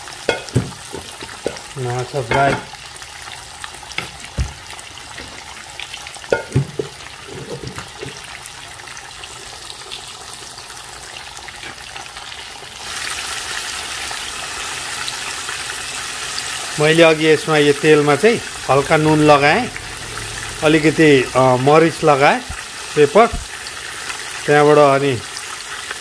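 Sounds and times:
fish sizzling in hot oil: 0.0 - 26.0
knocks in pan: 0.3 - 2.8, 6.3 - 8.2.

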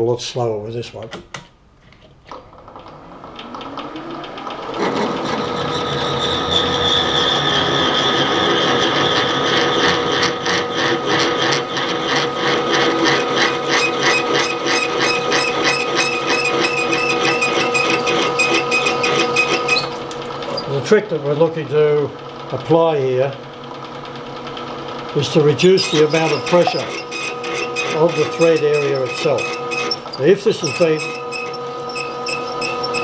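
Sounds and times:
milling machine drill whine: 2.6 - 33.0
fast even ticking of drilling: 8.6 - 21.4, 22.4 - 33.0.

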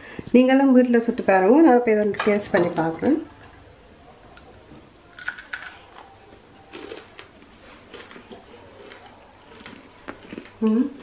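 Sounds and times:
faint chewing: 5.1 - 11.0.

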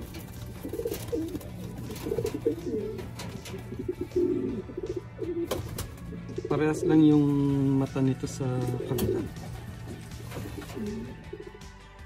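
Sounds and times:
pigeons cooing: 0.0 - 7.8, 8.6 - 11.6.

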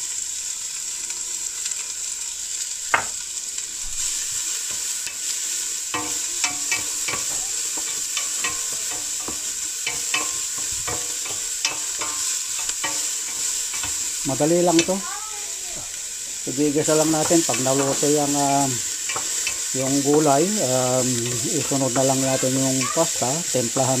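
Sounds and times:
onion and garlic sizzling: 0.0 - 24.0
knock on pot: 2.9 - 3.1.

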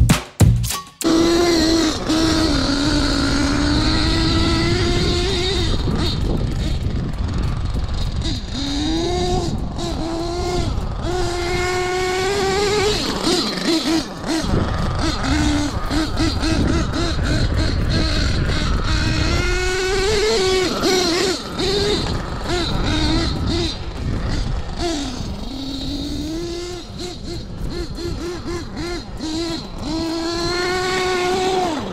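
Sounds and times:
high-revving nitro engine whine: 1.0 - 31.9.

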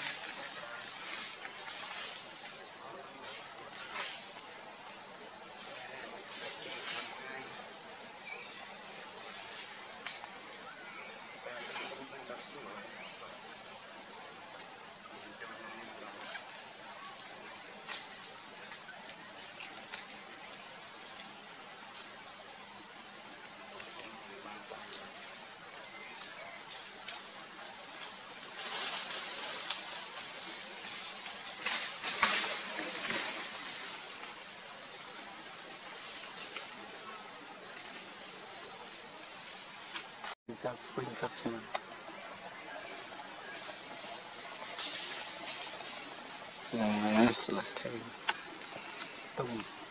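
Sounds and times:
insect chorus: 0.0 - 49.9
rustling and crackling: 27.0 - 34.5.

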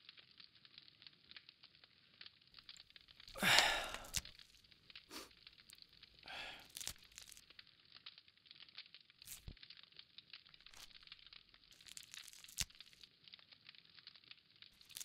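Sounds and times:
small snaps of greens: 2.6 - 14.1, 14.7 - 15.0
leafy greens tearing by hand: 3.3 - 4.4, 6.3 - 7.4, 9.2 - 9.6, 10.6 - 13.1, 14.8 - 15.0.

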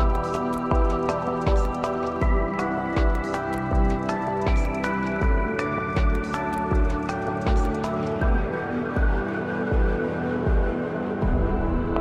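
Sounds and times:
deep drum hits: 11.2 - 12.0.

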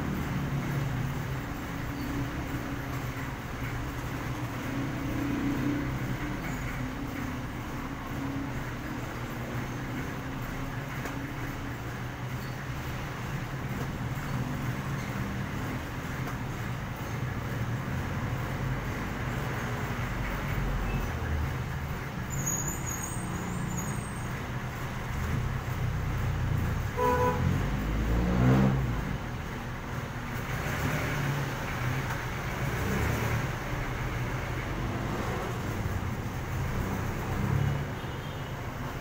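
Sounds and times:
traffic engines rumbling: 0.0 - 39.0
vehicle horn toot: 27.0 - 27.5
engine revving past: 27.3 - 29.3, 30.5 - 35.9.

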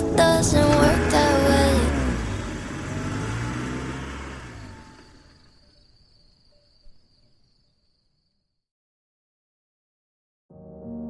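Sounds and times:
pop song low held chord: 0.0 - 2.5.

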